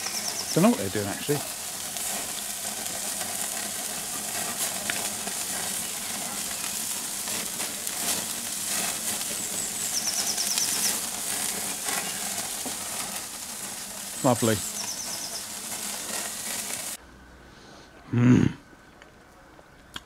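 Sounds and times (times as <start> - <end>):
bird chirping a high trill: 0.0 - 0.8, 9.4 - 11.0, 14.4 - 15.5
fat crackling: 0.0 - 17.0
meat sizzling on a barbecue: 0.0 - 17.0.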